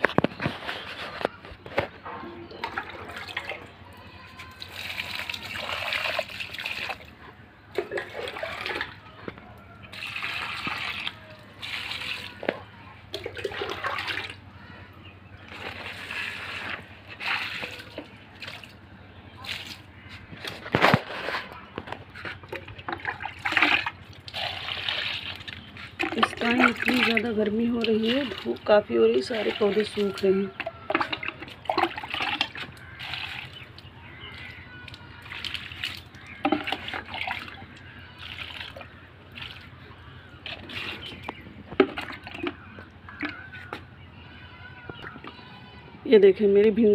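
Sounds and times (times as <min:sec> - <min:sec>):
water pouring onto soil: 0:04.5 - 0:07.1, 0:09.9 - 0:12.4, 0:15.5 - 0:18.8, 0:22.9 - 0:27.2, 0:30.9 - 0:37.6, 0:38.2 - 0:39.7.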